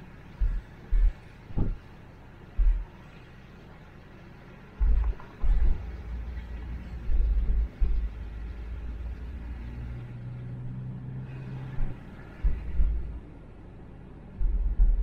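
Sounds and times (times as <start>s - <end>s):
steady low hum: 0.0s - 15.0s
loud low thumps: 0.4s - 1.8s, 4.8s - 5.9s, 7.1s - 8.1s, 11.8s - 13.2s, 14.4s - 15.0s
low vehicle rumble: 4.4s - 15.0s.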